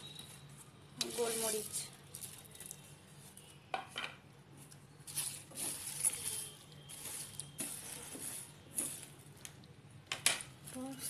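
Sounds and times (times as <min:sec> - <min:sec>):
plastic spatula stirring spices: 0:05.1 - 0:09.4.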